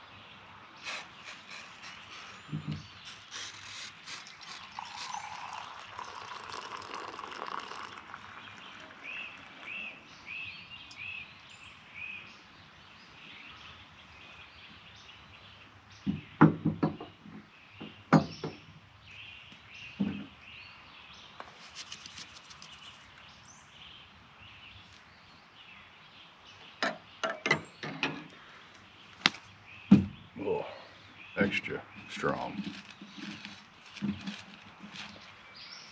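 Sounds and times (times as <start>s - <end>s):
birds chirping: 0.0s - 35.9s
pot spoon and mug clinking: 4.6s - 9.6s.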